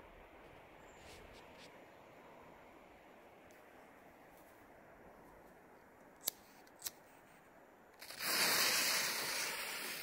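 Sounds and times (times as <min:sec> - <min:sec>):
firework fuse hissing: 0:08.0 - 0:10.0.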